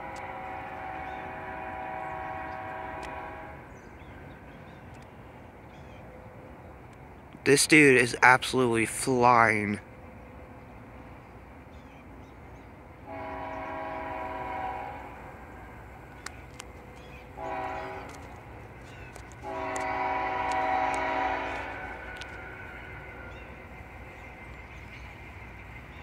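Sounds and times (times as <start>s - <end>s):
locomotive air horn blasts: 0.0s - 3.7s, 13.0s - 15.8s, 17.4s - 18.5s, 19.4s - 23.2s.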